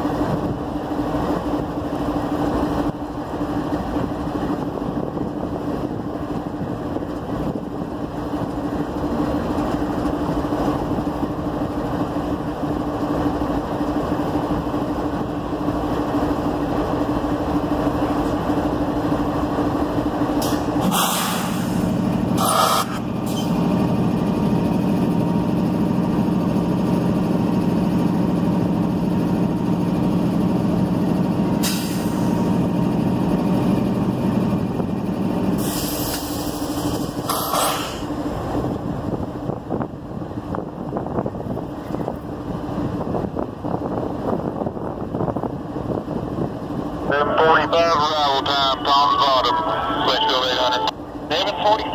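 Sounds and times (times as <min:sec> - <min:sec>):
diesel locomotive idling: 0:00.0 - 0:51.9
air hiss bursts: 0:20.4 - 0:23.5, 0:35.6 - 0:38.1.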